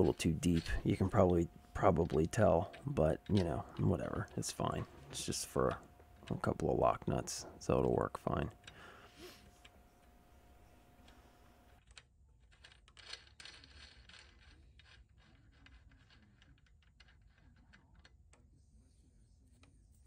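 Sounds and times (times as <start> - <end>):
nut spun onto screw threads: 11.0 - 18.6.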